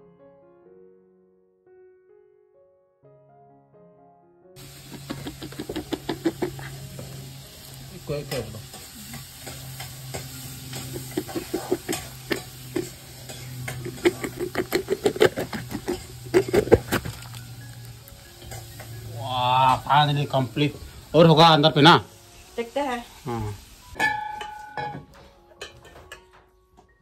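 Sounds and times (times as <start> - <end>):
wet squelches of food: 4.6 - 6.9.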